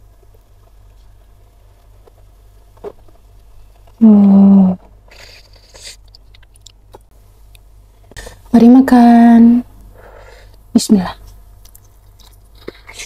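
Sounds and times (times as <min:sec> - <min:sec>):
woman humming: 0:04.0 - 0:05.4.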